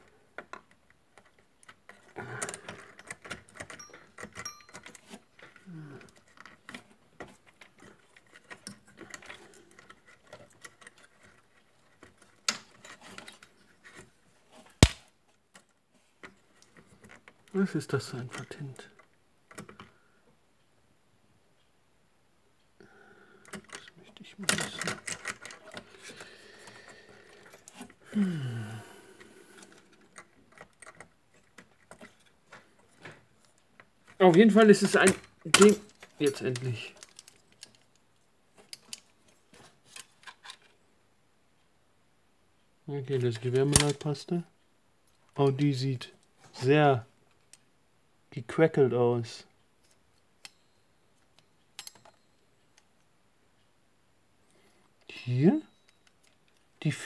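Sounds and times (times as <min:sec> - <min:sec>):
plastic fasteners clicking: 0:34.0 - 0:38.0.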